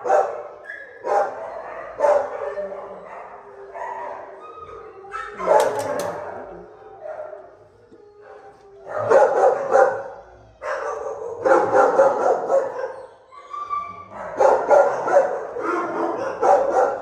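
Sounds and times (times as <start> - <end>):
dogs barking: 0.0 - 17.0
dog whining: 4.5 - 7.1, 12.8 - 14.4.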